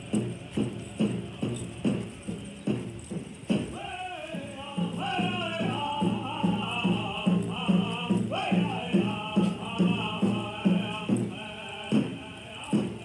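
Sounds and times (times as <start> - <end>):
drum beating steadily: 0.0 - 13.0
group of singers chanting: 3.7 - 13.0.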